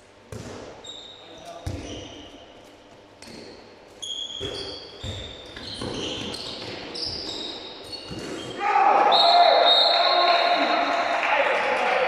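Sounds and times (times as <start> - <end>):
shoes squeaking on court: 0.3 - 8.6.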